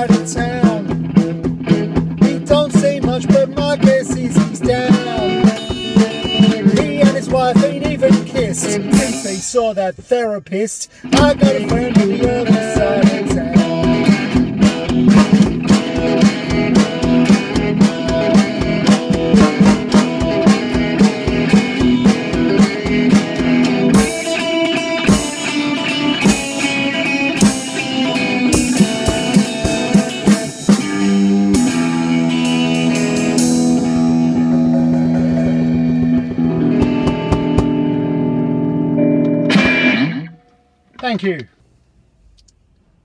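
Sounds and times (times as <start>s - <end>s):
percussive beat: 0.0s - 10.3s, 11.1s - 38.1s, 39.3s - 40.3s
rockabilly guitar: 0.0s - 41.4s.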